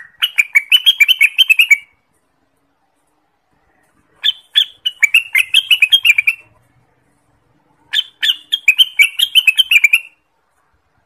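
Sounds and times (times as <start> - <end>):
bird singing rapid chirps: 0.0 - 2.0, 4.2 - 6.6, 7.9 - 10.3.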